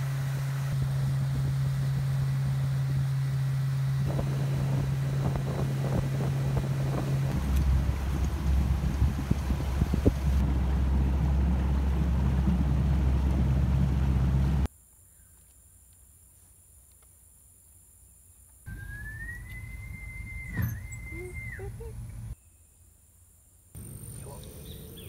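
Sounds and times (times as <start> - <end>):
boat motor running: 0.0 - 14.7, 18.7 - 22.4
wind buffeting microphone: 4.0 - 14.7
thin high whistle: 18.7 - 22.7.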